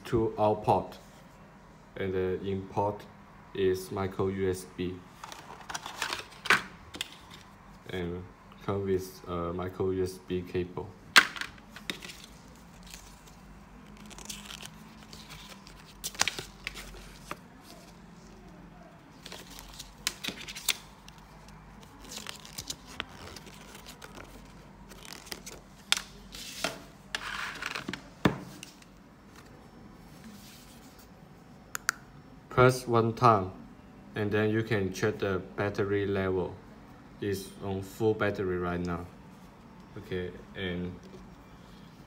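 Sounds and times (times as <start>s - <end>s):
paper and plastic rustling: 5.1s - 7.6s, 11.2s - 18.5s, 19.1s - 31.1s.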